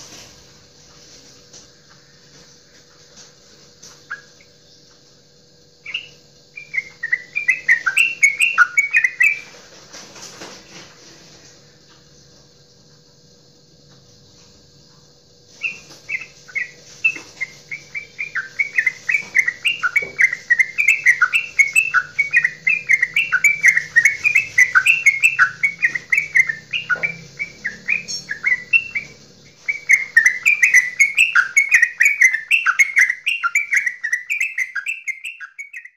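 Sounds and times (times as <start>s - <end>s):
bulbul chattering song: 3.9s - 9.6s, 15.5s - 35.9s.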